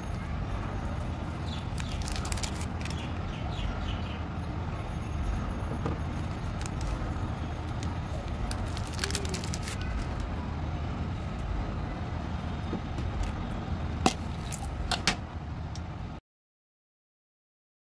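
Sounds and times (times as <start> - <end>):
low background rumble: 0.0 - 16.2
candy wrapper crinkling: 1.5 - 3.1, 6.2 - 10.3, 14.1 - 14.9.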